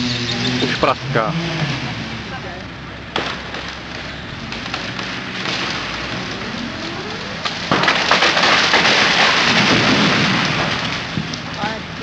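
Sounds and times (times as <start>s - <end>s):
branches snapping and breaking: 3.1s - 12.0s
tree trunk cracking: 3.1s - 12.0s.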